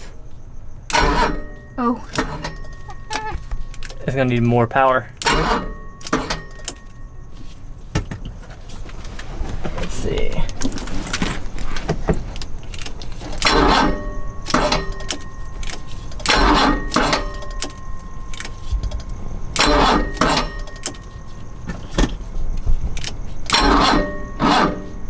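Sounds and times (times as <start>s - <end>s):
car starter cranking weakly: 13.3s - 14.8s, 16.2s - 17.6s, 19.6s - 20.9s, 23.5s - 24.9s.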